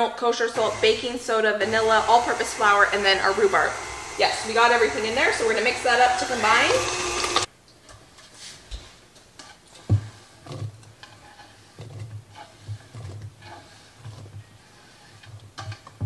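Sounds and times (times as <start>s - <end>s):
rustles and scrapes on board: 8.0s - 16.0s.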